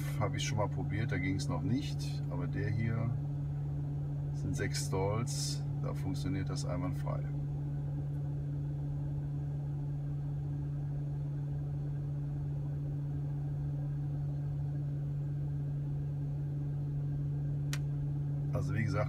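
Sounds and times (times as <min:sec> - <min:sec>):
cooling fan humming: 0:00.0 - 0:19.0.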